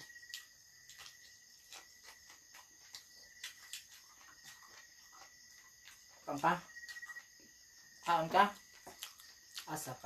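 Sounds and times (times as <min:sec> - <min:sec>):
chewing clicks and smacks: 0:00.0 - 0:06.2, 0:08.6 - 0:09.8.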